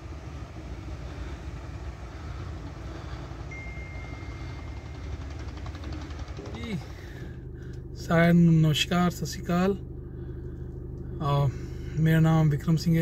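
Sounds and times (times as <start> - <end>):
low engine rumble: 0.0 - 13.0
faint thin tone: 3.5 - 5.0.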